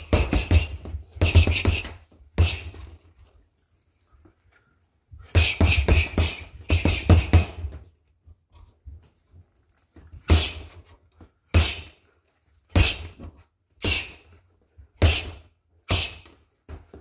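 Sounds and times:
boxing gloves punching heavy bag: 0.0s - 2.9s, 5.3s - 7.8s, 10.3s - 10.8s, 11.5s - 12.0s, 12.7s - 17.0s.

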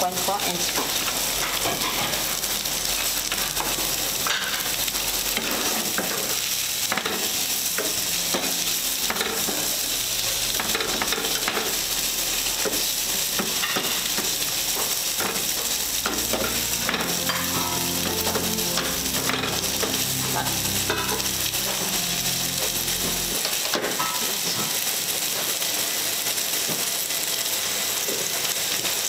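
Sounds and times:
vegetables sizzling in oil: 0.0s - 29.0s.

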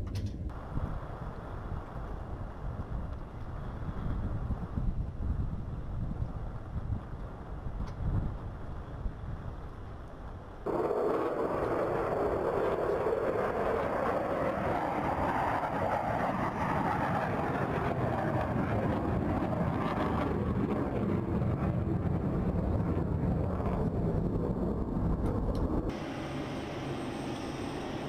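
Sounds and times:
jet engine roar: 10.6s - 28.0s.

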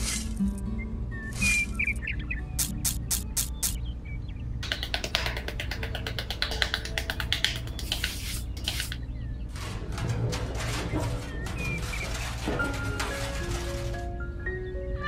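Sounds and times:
quiet background music: 0.0s - 15.0s
trowel scraping in sand: 7.8s - 9.0s.

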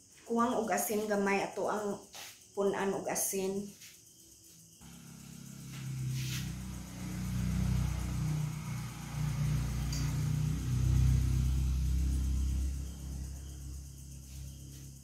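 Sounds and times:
motor engine revving: 4.8s - 15.0s.

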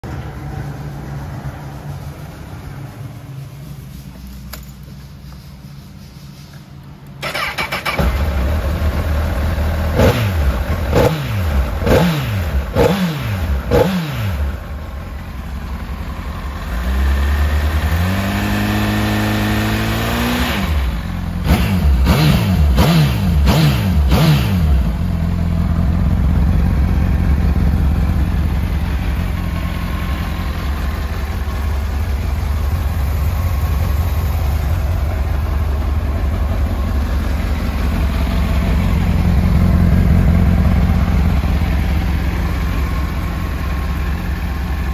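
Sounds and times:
motorcycle engine revving and idling: 0.0s - 6.0s, 7.2s - 44.9s.

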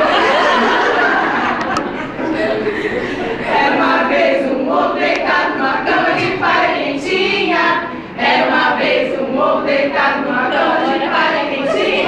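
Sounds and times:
group of women singing: 2.8s - 12.0s.

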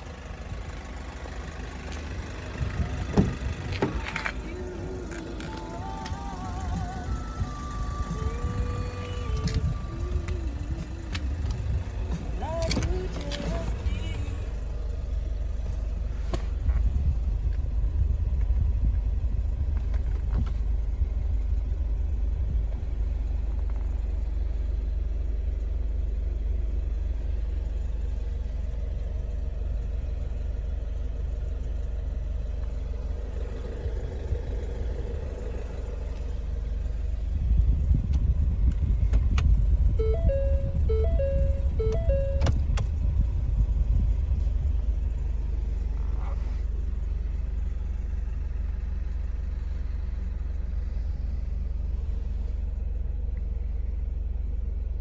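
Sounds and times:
car engine idling: 0.0s - 55.0s
electronic chime tones: 40.0s - 42.5s.

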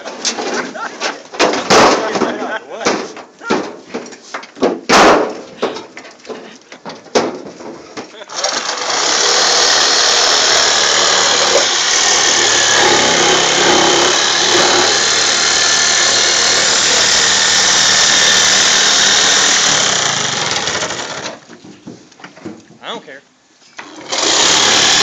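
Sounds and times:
power saw cutting: 8.3s - 21.4s, 23.8s - 25.0s.

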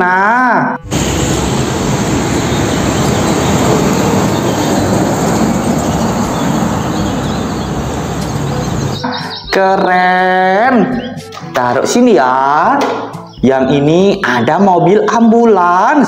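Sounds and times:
heavy vehicle running: 0.8s - 9.1s.

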